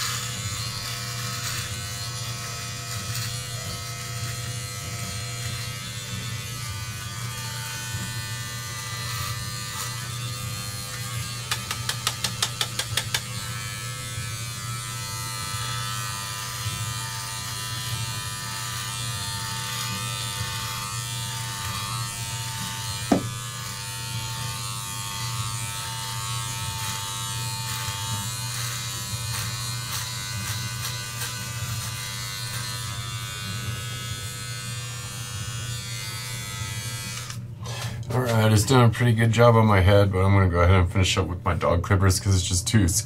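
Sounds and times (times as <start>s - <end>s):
hair trimmer buzzing: 0.0s - 38.4s
short knock: 23.1s - 23.3s.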